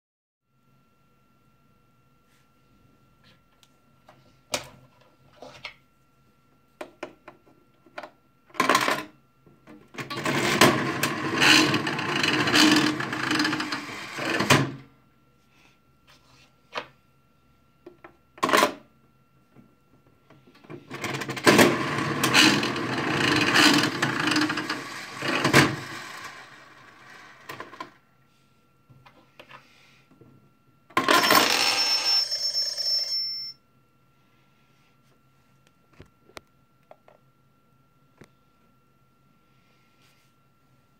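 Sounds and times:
reels spinning with rattle: 0:21.0 - 0:27.9
toy slot machine click: 0:31.0 - 0:33.0.

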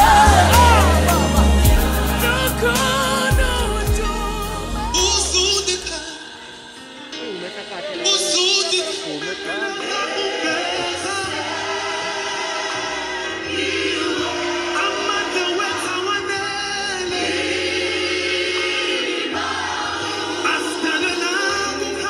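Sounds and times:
repeating bass line: 0:00.0 - 0:06.0
gospel choir singing: 0:00.0 - 0:22.0.

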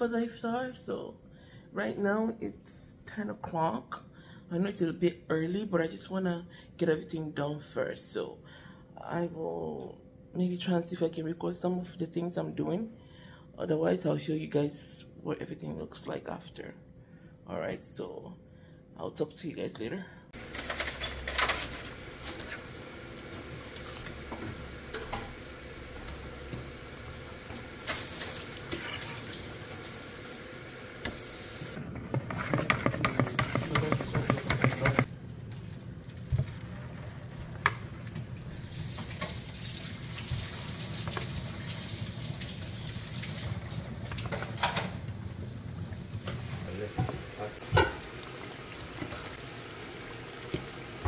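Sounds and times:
tap water running into sink: 0:20.5 - 0:31.8, 0:32.8 - 0:35.1, 0:38.5 - 0:45.0, 0:45.9 - 0:51.0
dishes clattering: 0:23.7 - 0:26.8, 0:31.9 - 0:35.1, 0:47.0 - 0:48.1.

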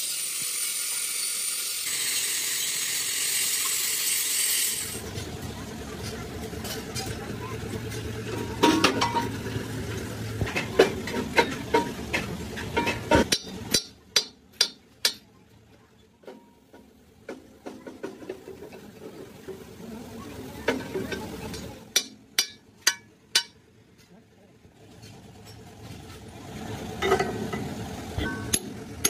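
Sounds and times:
hammer striking steel: 0:12.8 - 0:15.3, 0:21.9 - 0:23.6, 0:28.2 - 0:28.8.

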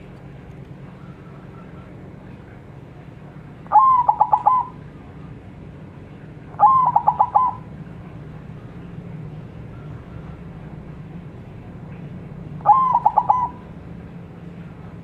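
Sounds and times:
dove cooing song: 0:03.7 - 0:04.9, 0:06.5 - 0:07.9, 0:12.6 - 0:13.8.

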